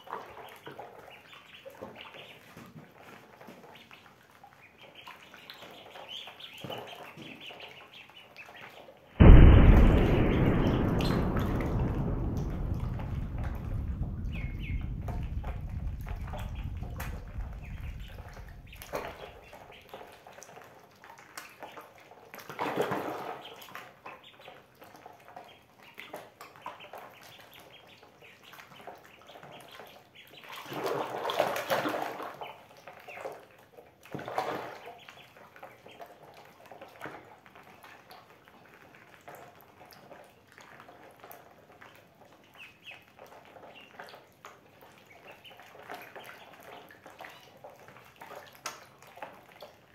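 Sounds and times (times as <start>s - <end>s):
ducklings splashing in water: 0.0s - 49.9s
small water drips: 0.0s - 49.9s
low rumble: 9.2s - 19.6s.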